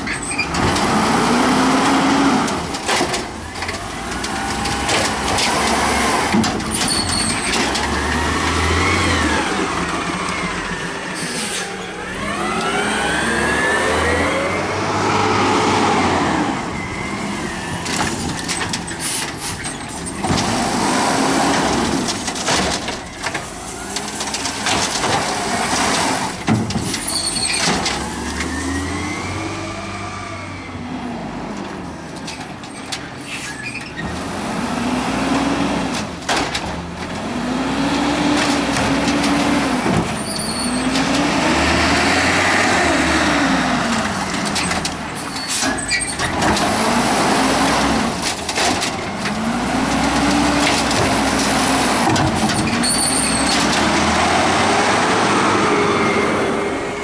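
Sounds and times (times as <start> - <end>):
garbage truck engine revving: 0.0 - 32.6, 33.4 - 57.0
air brakes hissing: 11.2 - 11.8, 33.2 - 33.6.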